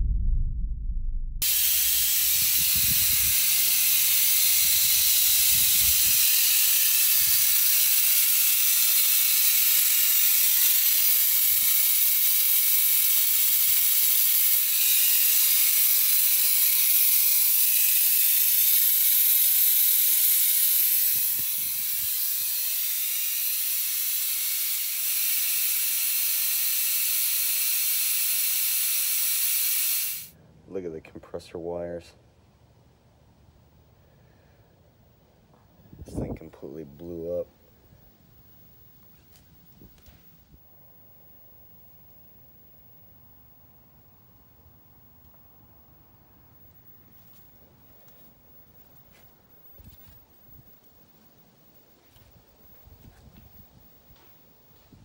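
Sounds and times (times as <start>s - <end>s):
refrigerant hissing: 1.4s - 30.4s, 46.7s - 55.0s.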